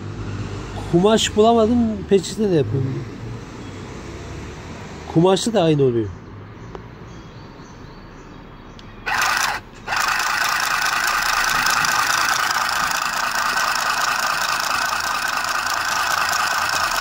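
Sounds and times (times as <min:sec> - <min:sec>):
mini sewing machine running: 0:09.1 - 0:17.0.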